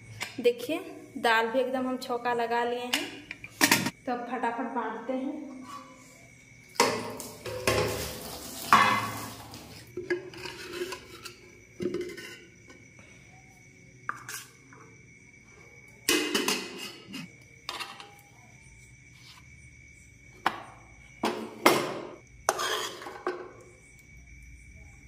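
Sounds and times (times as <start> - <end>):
plates and pots set down: 3.0 - 3.9, 6.8 - 12.4, 16.1 - 18.1, 21.2 - 23.5
ladle scraping metal pot: 10.1 - 12.6, 22.5 - 23.4.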